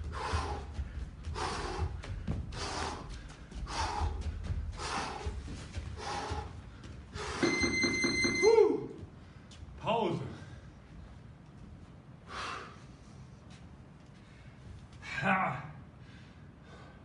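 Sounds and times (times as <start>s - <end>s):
feet thudding on mat: 0.0s - 7.6s
man breathing hard: 0.0s - 7.6s, 12.2s - 13.5s, 15.8s - 17.0s
steady high beep: 7.4s - 8.6s.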